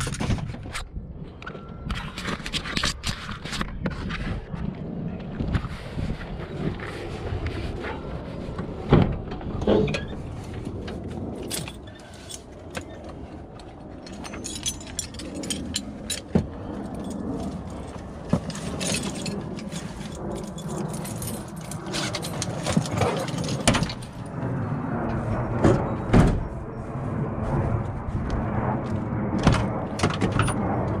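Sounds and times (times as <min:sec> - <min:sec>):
low background rumble: 0:03.8 - 0:31.0
metal tools clinking and rattling: 0:11.4 - 0:13.1, 0:14.0 - 0:24.3.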